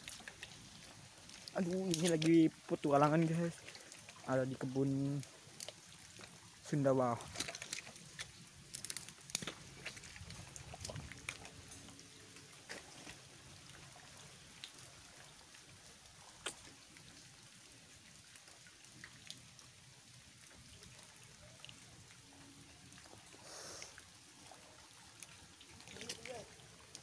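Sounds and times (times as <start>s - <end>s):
footsteps in wet mud: 0.0s - 4.4s, 5.2s - 14.0s
rustle: 0.0s - 27.0s.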